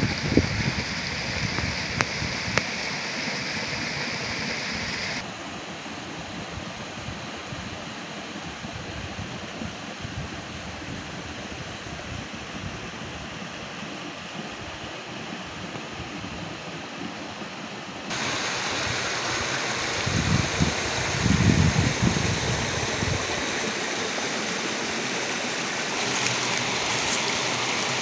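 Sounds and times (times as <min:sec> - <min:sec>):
stream water flowing: 0:00.0 - 0:06.0, 0:13.3 - 0:28.0.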